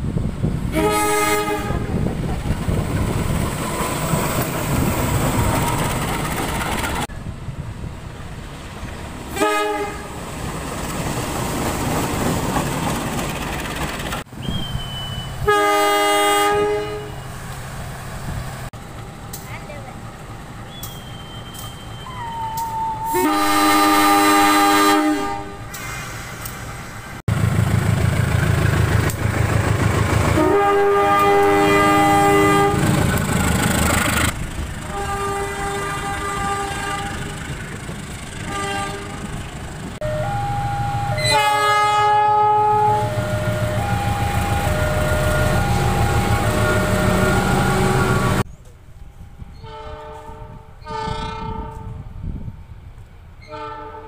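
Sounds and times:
locomotive horn blasts: 0:00.7 - 0:02.0, 0:09.3 - 0:10.2, 0:14.8 - 0:17.3, 0:23.1 - 0:25.7, 0:30.4 - 0:33.0, 0:34.8 - 0:37.4, 0:38.5 - 0:39.4, 0:40.0 - 0:48.4, 0:49.6 - 0:52.0, 0:53.4 - 0:54.0
diesel engines running: 0:25.7 - 0:30.7, 0:32.0 - 0:41.5, 0:42.8 - 0:48.5.

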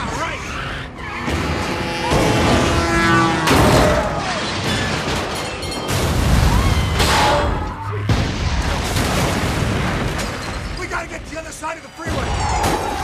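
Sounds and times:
crashes and booms: 0:03.5 - 0:11.3.

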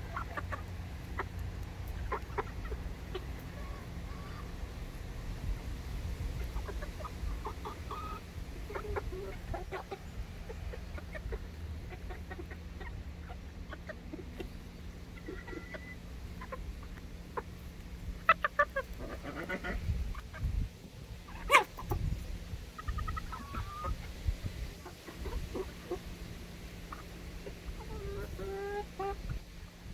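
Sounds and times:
chickens clucking: 0:00.0 - 0:29.9
chickens pecking taps: 0:00.1 - 0:03.5.

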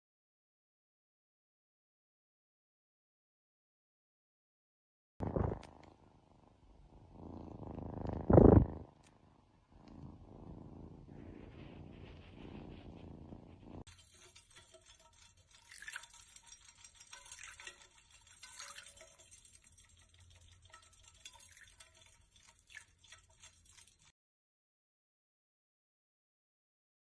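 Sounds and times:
cat purring: 0:05.2 - 0:15.3
faint clicks and crackle: 0:05.2 - 0:24.1.

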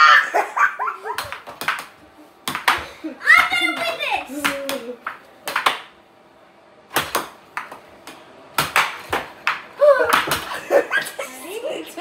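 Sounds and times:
air hockey puck clacking: 0:01.1 - 0:06.0, 0:06.9 - 0:10.6.

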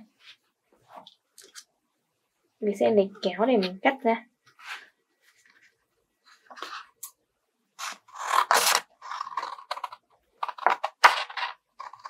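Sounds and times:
scissors cutting cardboard: 0:07.8 - 0:12.0.

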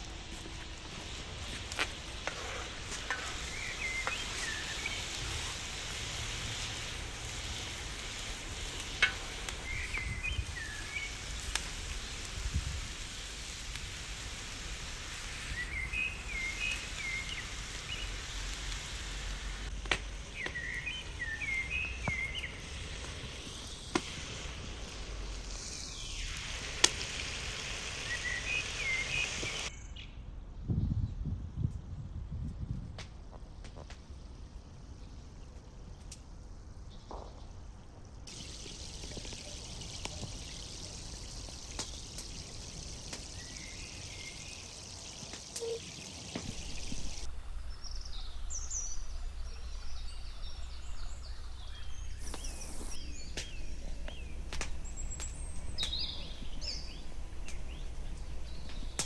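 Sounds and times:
meat and vegetables sizzling: 0:00.0 - 0:29.7, 0:38.2 - 0:59.0
fire crackles: 0:00.0 - 0:30.6, 0:31.3 - 0:59.0
bird chirping: 0:02.4 - 0:05.6, 0:15.5 - 0:18.3, 0:20.2 - 0:24.0, 0:38.3 - 0:59.0.

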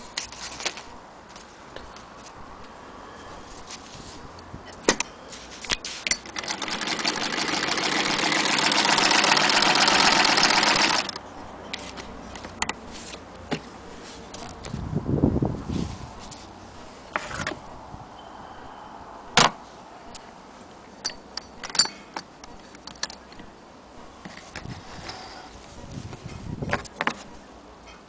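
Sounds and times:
sewing machine rattling: 0:06.2 - 0:11.2.

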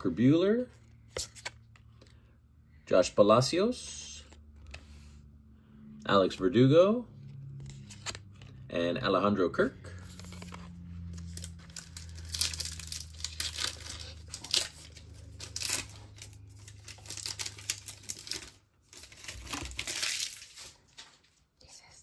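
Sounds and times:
plastic wrapper tearing and crinkling: 0:10.1 - 0:21.2.

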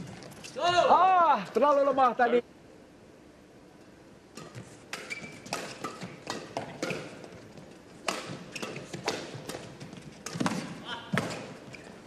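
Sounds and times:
racket hitting shuttlecock: 0:04.3 - 0:12.0
shoe squeaks: 0:04.4 - 0:06.1, 0:08.4 - 0:09.0.

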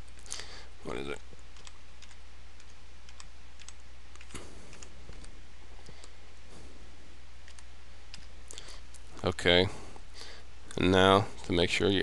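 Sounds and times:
low hum and hiss: 0:00.0 - 0:12.0.

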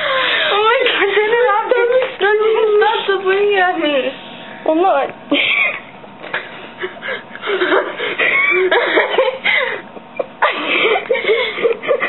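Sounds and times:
girls laughing uncontrollably: 0:05.3 - 0:12.0.

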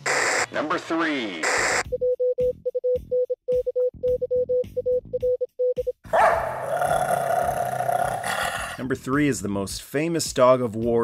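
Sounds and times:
rapid electronic beeps: 0:00.0 - 0:00.5, 0:01.4 - 0:05.4
dog growling: 0:06.2 - 0:08.8.

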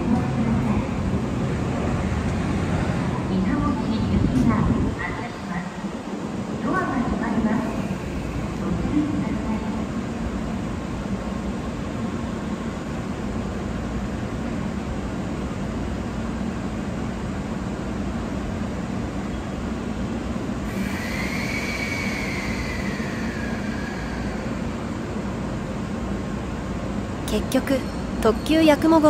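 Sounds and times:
train hum and rumble: 0:00.0 - 0:29.0
high-pitched whine: 0:20.7 - 0:25.0.

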